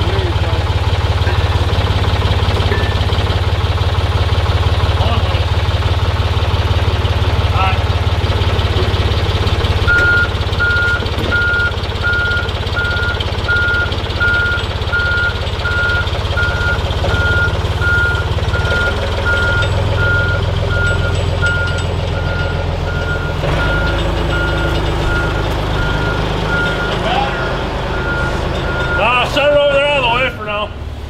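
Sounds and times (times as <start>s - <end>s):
heavy machine engine running: 0.0s - 31.0s
backup alarm beeping: 9.9s - 30.8s.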